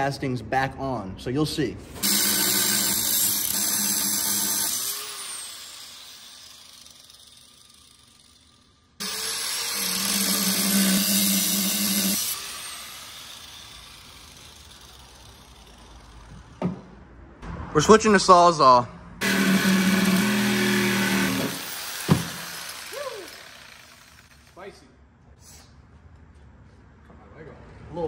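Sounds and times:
angle grinder cutting steel: 2.0s - 16.2s, 19.2s - 24.6s.

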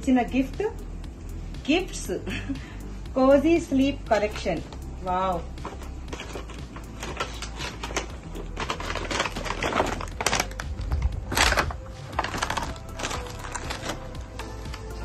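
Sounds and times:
plastic wrapping crinkling: 5.5s - 15.0s.

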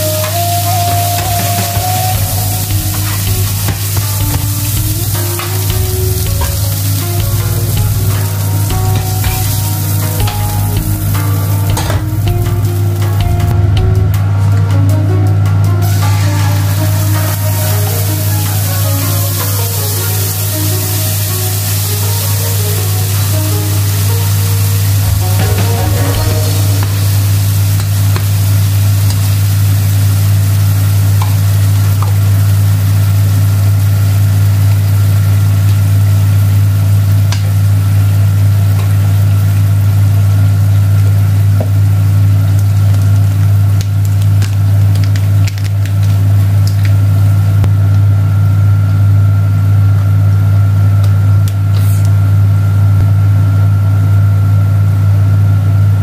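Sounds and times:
hiss: 0.0s - 13.3s, 15.8s - 40.6s, 51.7s - 52.3s
thin high tone: 0.0s - 13.8s, 15.8s - 29.3s.

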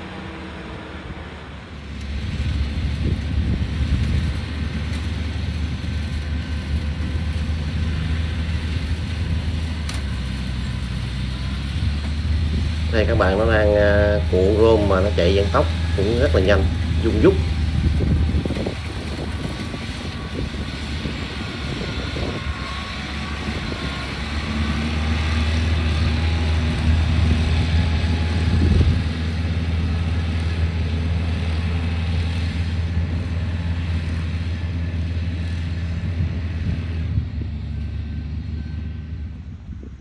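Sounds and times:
baling machine running: 0.0s - 35.2s.

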